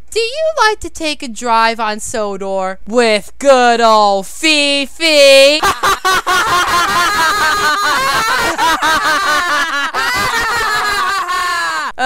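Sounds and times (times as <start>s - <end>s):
group laughing: 5.6s - 12.0s.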